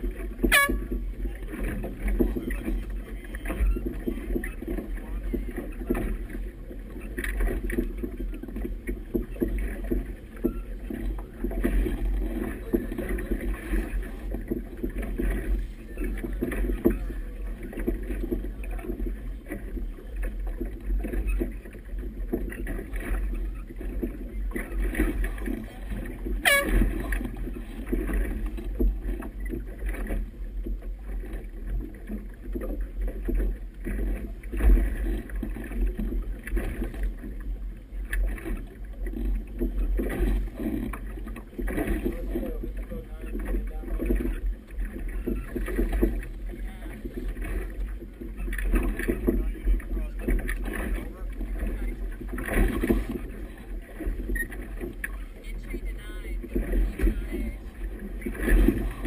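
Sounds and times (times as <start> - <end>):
water slapping boat hull: 0.0 - 59.0.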